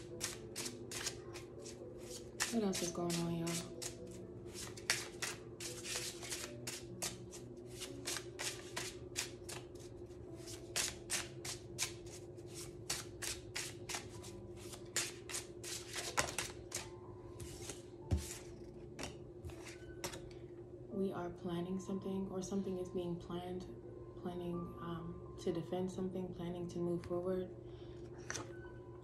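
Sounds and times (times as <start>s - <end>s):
cards being shuffled: 0.1s - 20.2s.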